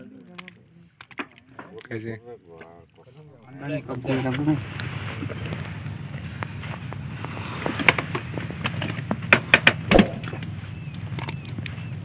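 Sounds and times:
boat engine humming: 0:03.1 - 0:12.0
sharp clicks and knocks: 0:07.8 - 0:10.5.

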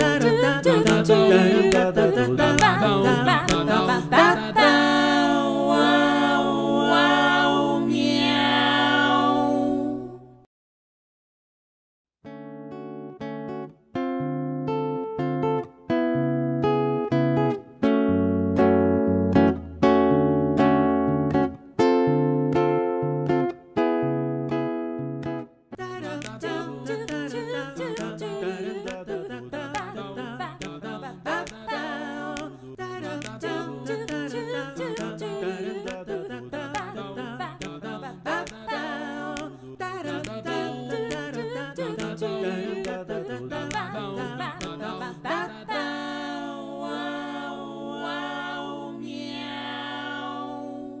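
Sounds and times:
sharp clicks keeping time: 0:00.0 - 0:05.2, 0:26.1 - 0:29.0, 0:33.2 - 0:36.1, 0:39.3 - 0:44.0
voices singing in harmony: 0:00.0 - 0:10.5, 0:25.8 - 0:51.0.

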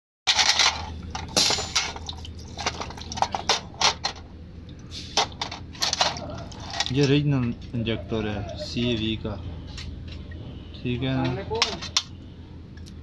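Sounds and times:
metal parts clinking in fluid: 0:00.3 - 0:04.3, 0:05.1 - 0:07.8
dripping: 0:01.0 - 0:05.6.

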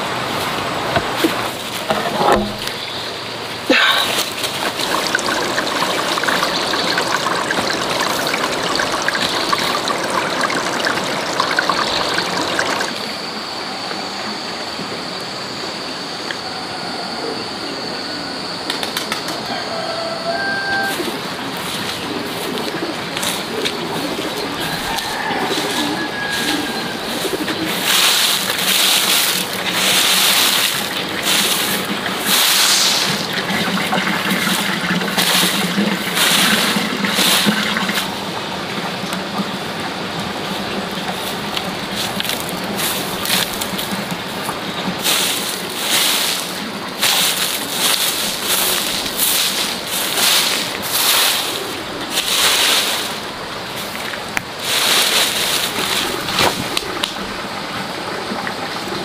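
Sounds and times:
broom sweeping leaves on dirt: 0:19.7 - 0:33.3, 0:41.2 - 0:56.8.

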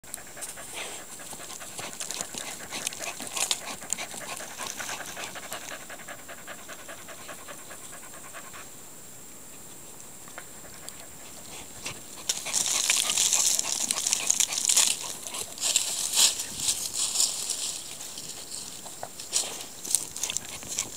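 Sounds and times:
puppy panting rapidly: 0:00.0 - 0:08.7, 0:10.4 - 0:16.6
paws scrabbling in soil: 0:00.1 - 0:08.6, 0:10.3 - 0:20.9.

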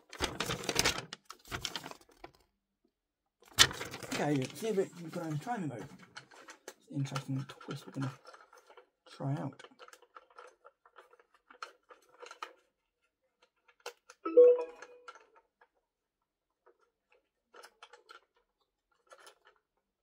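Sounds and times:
plastic toy and packaging clicking: 0:00.0 - 0:02.5, 0:03.4 - 0:14.2, 0:16.5 - 0:20.0
short tone: 0:14.3 - 0:15.2.

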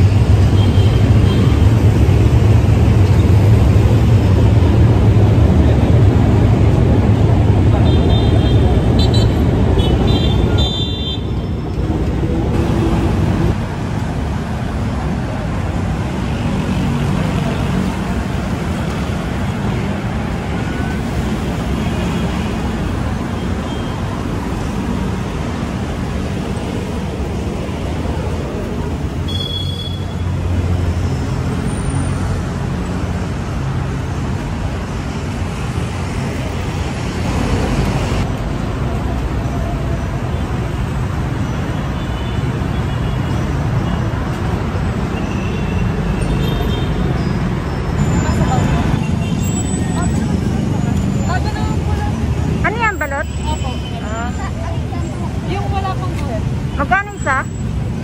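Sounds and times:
road traffic rumble: 0:00.0 - 0:58.0.

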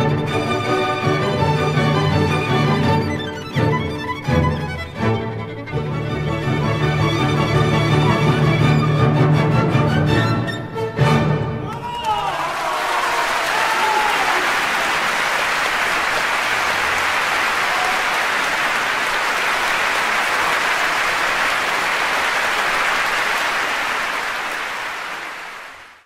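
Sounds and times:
audience applauding: 0:11.7 - 0:26.0.

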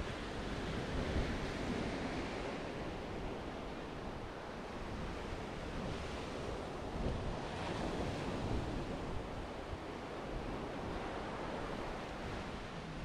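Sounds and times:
wind rumbling on microphone: 0:00.0 - 0:13.0.

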